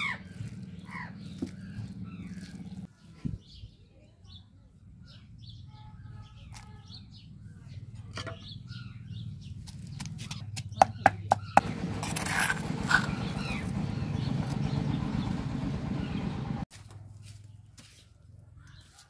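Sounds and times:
metal spoon scraping stone: 11.6 - 13.7.

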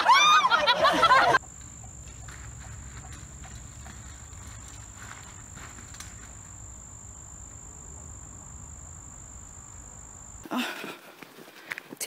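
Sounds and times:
low outdoor rumble: 0.5 - 10.5.

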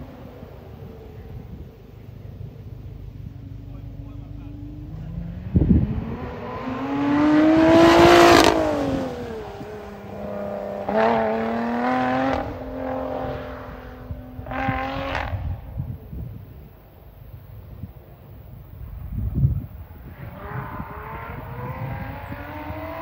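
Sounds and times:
car exhaust passing by: 0.0 - 16.8, 17.4 - 23.0
engine revving: 3.5 - 15.9, 20.0 - 23.0.

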